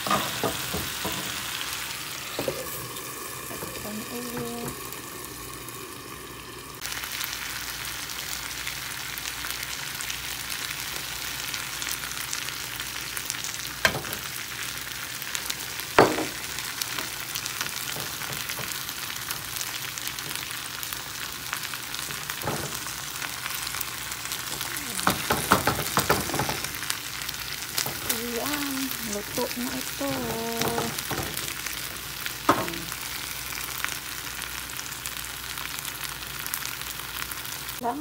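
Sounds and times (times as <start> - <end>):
chicken and potatoes sizzling in a pan: 0.0 - 38.0
knocks against a pan: 25.0 - 26.6.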